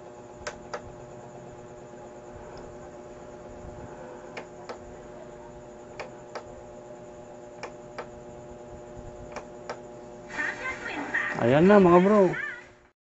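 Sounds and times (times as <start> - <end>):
faint steady hum: 0.0 - 12.9
television button clicking: 0.4 - 0.9, 4.4 - 4.9, 5.9 - 6.5, 7.6 - 8.1, 9.3 - 9.8.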